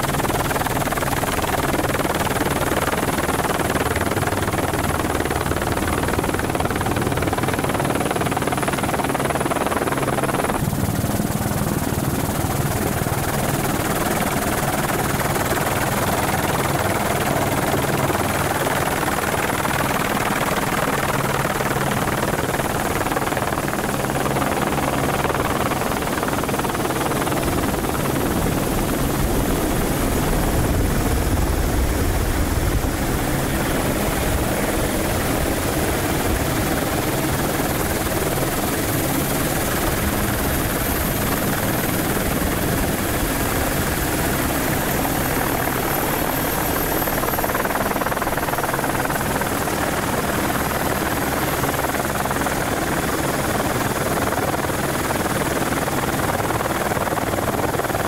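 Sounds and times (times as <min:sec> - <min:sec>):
helicopter rotor and engine noise: 0:00.0 - 0:58.0.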